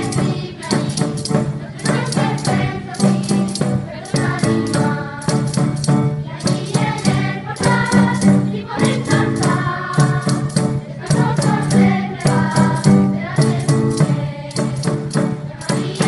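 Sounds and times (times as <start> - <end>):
jingling percussion: 0.0 - 16.0
voices singing: 0.0 - 16.0.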